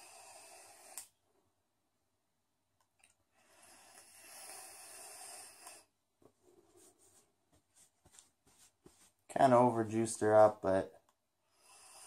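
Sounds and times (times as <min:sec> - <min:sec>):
breathy vape hiss: 0:00.0 - 0:01.2, 0:03.3 - 0:05.9, 0:11.5 - 0:12.0.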